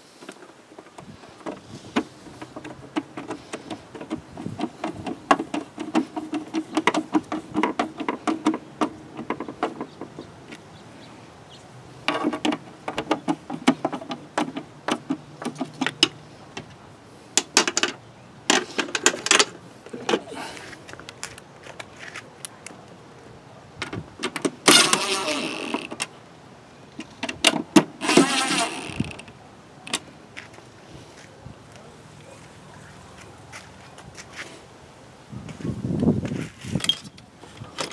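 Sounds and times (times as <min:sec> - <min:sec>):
hand tools clicking and rattling: 0:00.2 - 0:10.7, 0:12.1 - 0:16.8, 0:17.4 - 0:21.9, 0:36.7 - 0:37.9.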